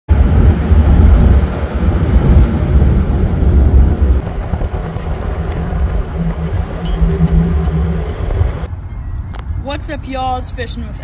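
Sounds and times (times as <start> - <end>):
wind buffeting microphone: 0.1 - 8.7
ferry engines droning: 0.1 - 9.8.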